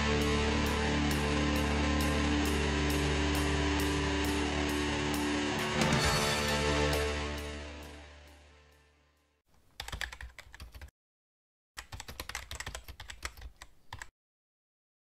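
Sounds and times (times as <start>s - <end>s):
electric guitar music: 0.0s - 8.8s
computer keyboard typing: 9.7s - 10.9s, 11.8s - 14.1s.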